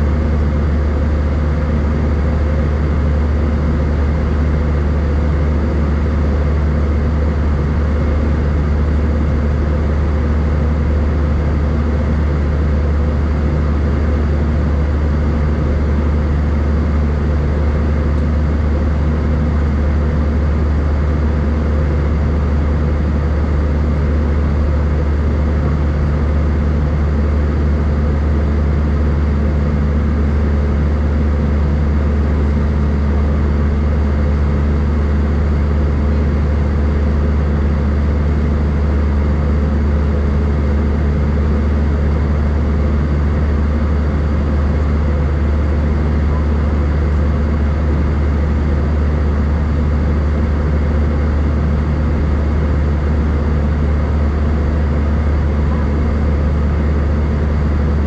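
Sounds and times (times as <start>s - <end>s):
jet engine drone in cabin: 0.0s - 58.0s.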